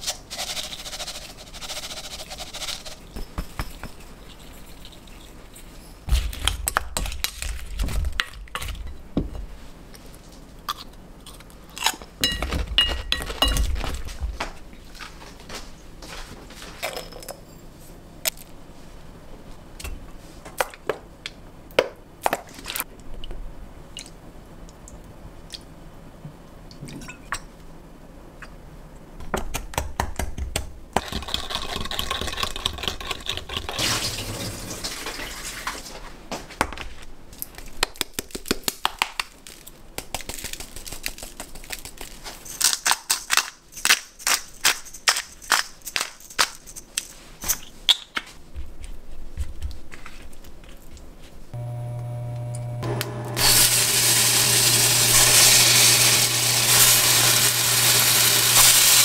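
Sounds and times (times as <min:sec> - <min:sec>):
liquid pouring and stirring: 0:00.0 - 0:06.0.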